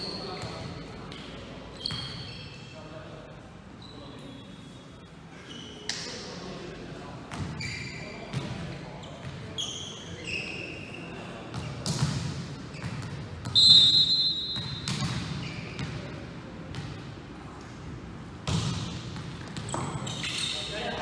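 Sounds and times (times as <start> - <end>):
ball bouncing on gym floor: 11.5 - 13.6, 14.5 - 16.1, 16.7 - 17.1, 18.4 - 20.2
referee's whistle blast: 13.5 - 15.0.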